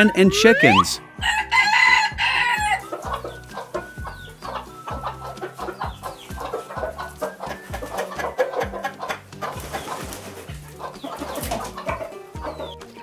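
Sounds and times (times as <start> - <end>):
hens clucking: 0.0 - 13.0
rooster crowing: 1.2 - 3.2.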